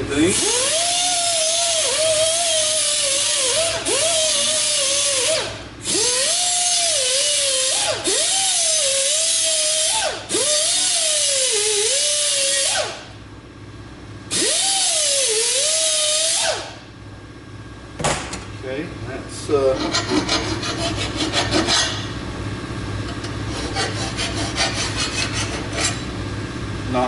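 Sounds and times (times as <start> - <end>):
die grinder grinding metal: 0.2 - 12.8, 19.8 - 22.1, 23.1 - 26.1.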